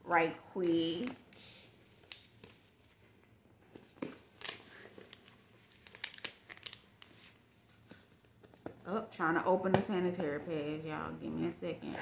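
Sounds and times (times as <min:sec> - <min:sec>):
packaging crinkling and tearing: 0:01.0 - 0:08.6.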